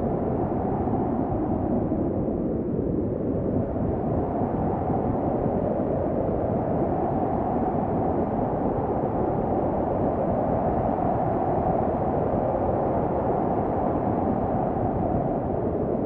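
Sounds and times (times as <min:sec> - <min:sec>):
wind blowing in a dull rush: 0:00.0 - 0:16.0.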